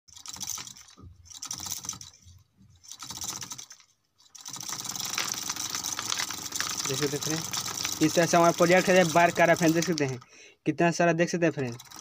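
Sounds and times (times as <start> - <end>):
thresher drum clicking clatter: 2.8 - 3.8, 4.4 - 10.2, 11.7 - 12.0.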